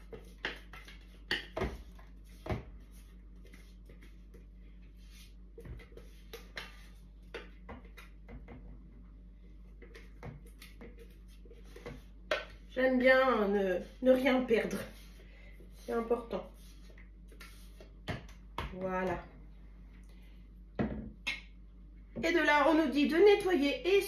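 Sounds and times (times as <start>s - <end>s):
spatula scraping bowl: 9.8s - 18.0s.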